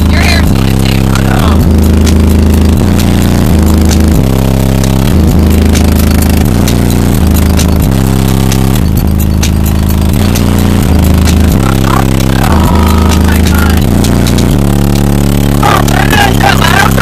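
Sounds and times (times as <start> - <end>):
bass-heavy music through subwoofers: 0.0 - 17.0.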